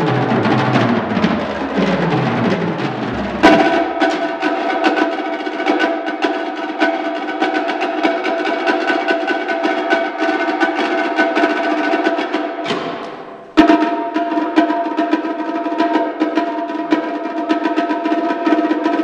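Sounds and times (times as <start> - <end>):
fast drumming: 0.0 - 5.8.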